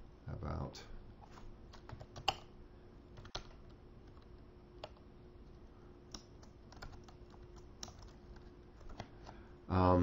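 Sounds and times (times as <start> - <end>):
computer keyboard keystrokes: 1.7 - 2.5, 3.2 - 5.0, 6.1 - 9.4.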